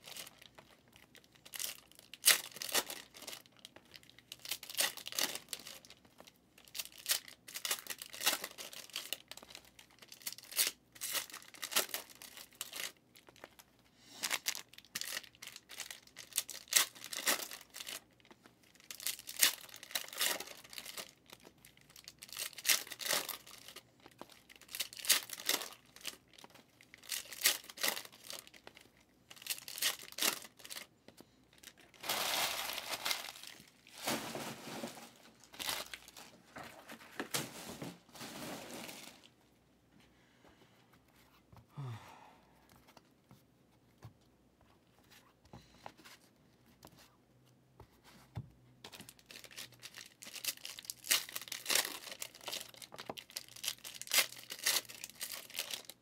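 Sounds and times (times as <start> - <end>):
card packs tearing and crinkling: 0.0 - 13.5, 14.2 - 18.2, 18.8 - 30.9, 31.6 - 39.3, 49.2 - 56.0.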